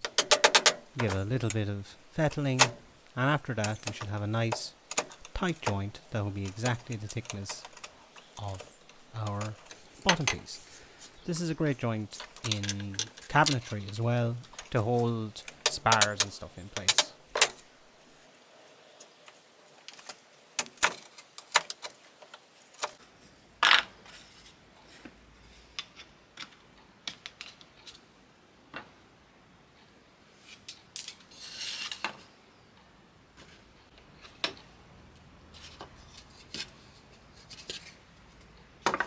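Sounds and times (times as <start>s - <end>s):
brief wood scrape: 31.3s - 32.2s.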